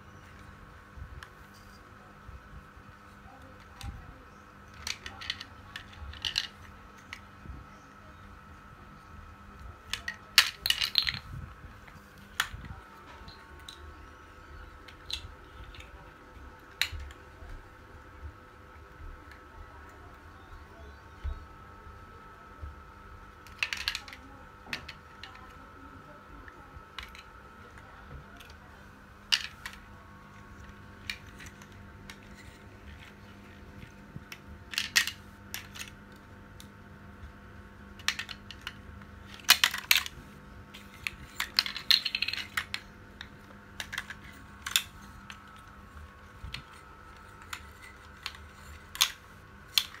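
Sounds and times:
plastic toys clattering on tile floor: 0:03.3 - 0:07.3, 0:09.8 - 0:17.6, 0:23.4 - 0:25.6, 0:29.2 - 0:36.0, 0:38.0 - 0:50.0.

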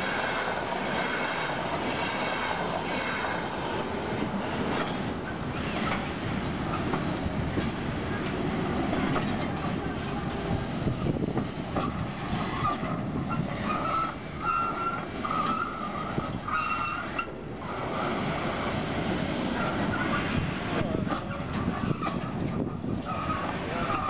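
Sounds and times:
train wheels rumbling: 0:00.0 - 0:24.0
high metallic squeal: 0:12.5 - 0:17.3.

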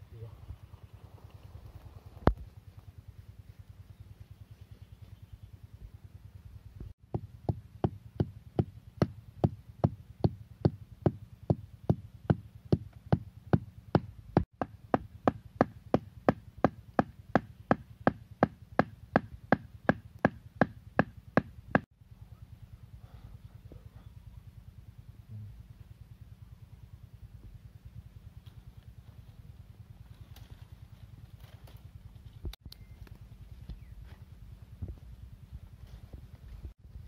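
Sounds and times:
stakes pounded with wooden club: 0:07.1 - 0:21.8.

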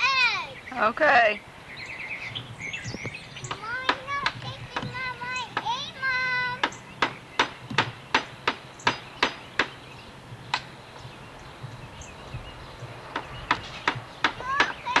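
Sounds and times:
hammer on wooden boards: 0:03.5 - 0:05.8, 0:06.6 - 0:09.8, 0:13.1 - 0:15.0.

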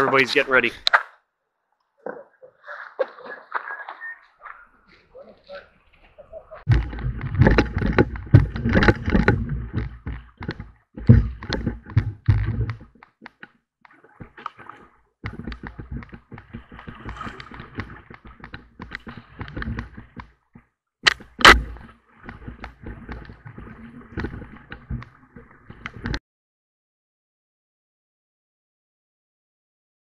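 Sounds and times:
paddles knocking against boat: 0:06.2 - 0:14.4, 0:15.2 - 0:26.2
water rushing and splashing: 0:13.9 - 0:20.3.

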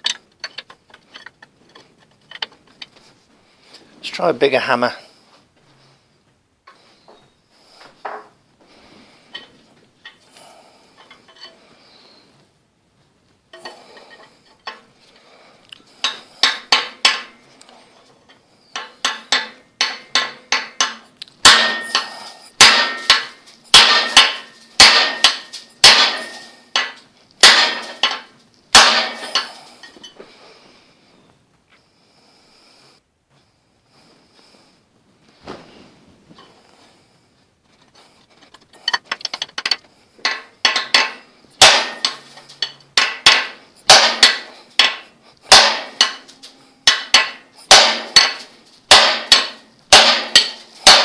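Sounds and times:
hammer striking steel bar: 0:16.0 - 0:17.4, 0:18.8 - 0:29.6, 0:40.2 - 0:51.0
light metal clinks: 0:18.3 - 0:27.1.

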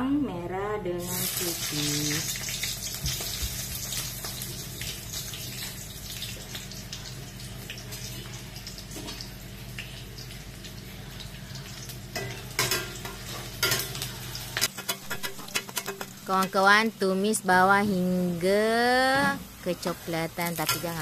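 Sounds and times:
shallots sizzling in hot oil: 0:01.0 - 0:17.8, 0:18.4 - 0:21.0
metal spatula scraping wok: 0:14.6 - 0:16.1.

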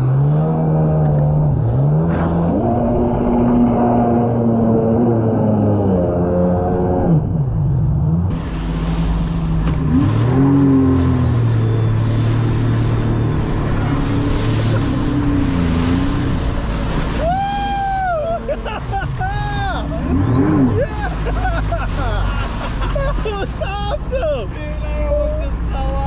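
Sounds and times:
jet ski engine running: 0:00.0 - 0:26.0
wind: 0:00.0 - 0:26.0
water spray rushing: 0:08.3 - 0:24.3.

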